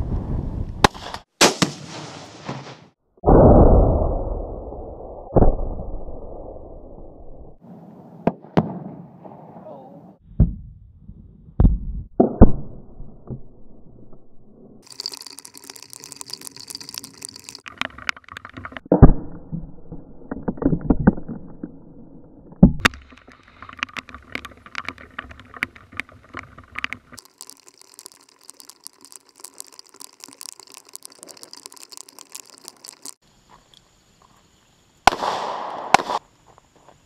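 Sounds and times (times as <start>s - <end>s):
faint crackling ticks: 22.9s - 33.9s
gunshots: 35.1s - 36.2s.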